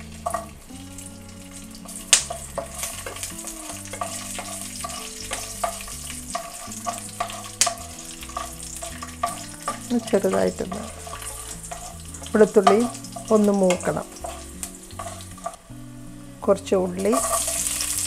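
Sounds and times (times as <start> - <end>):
food sizzling in oil: 0.0 - 18.0
wooden spatula stirring: 1.8 - 15.6.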